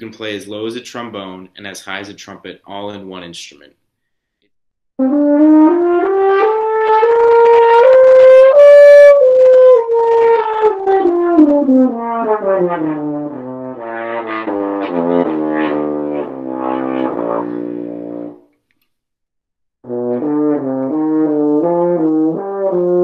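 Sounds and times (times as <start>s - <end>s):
french horn playing: 5.0s - 18.4s, 19.9s - 23.0s.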